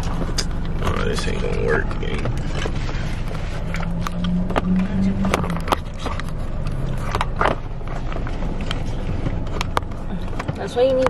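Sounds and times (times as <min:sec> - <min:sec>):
car low rumble: 0:00.0 - 0:11.0.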